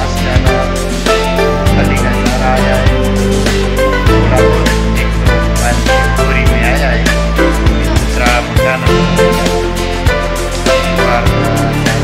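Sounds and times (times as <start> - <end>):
background music with deep bass: 0.0 - 12.0.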